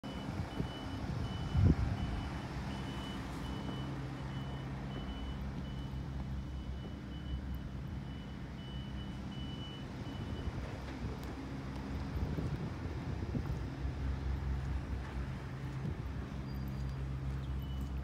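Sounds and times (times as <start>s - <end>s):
reversing alarm beeping: 0.0s - 10.6s, 16.4s - 18.0s
diesel truck engine running: 0.0s - 18.0s.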